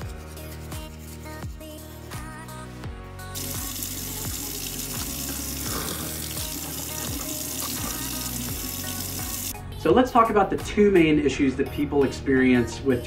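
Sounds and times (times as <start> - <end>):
background music with steady beat: 0.0 - 13.0
faucet water running into sink: 3.4 - 9.5.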